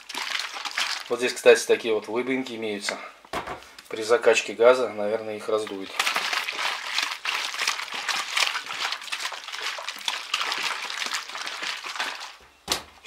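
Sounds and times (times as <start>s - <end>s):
liquid sloshing in plastic bottle: 0.0s - 1.9s, 5.4s - 12.5s.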